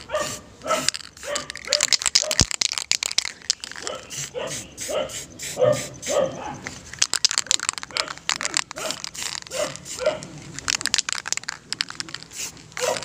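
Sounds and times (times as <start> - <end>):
dog barking: 0.1 - 2.4, 3.8 - 6.6, 8.8 - 10.3, 12.8 - 13.0
rapid sharp clicks and rattles: 0.6 - 4.3, 6.8 - 13.0.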